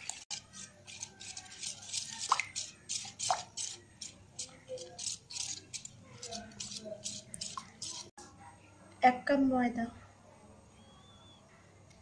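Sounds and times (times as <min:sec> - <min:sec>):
hand squelching wet batter: 0:00.0 - 0:08.1.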